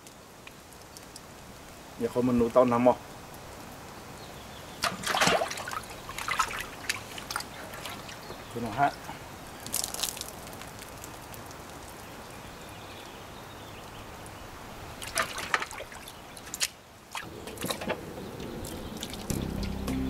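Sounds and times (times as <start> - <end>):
water trickling and splashing: 0.0 - 20.0
background music: 19.3 - 20.0.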